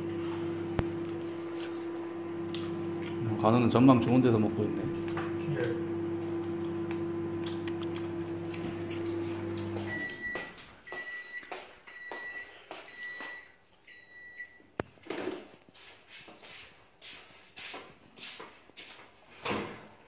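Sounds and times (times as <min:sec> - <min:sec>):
kitchen appliance humming: 0:00.0 - 0:10.5.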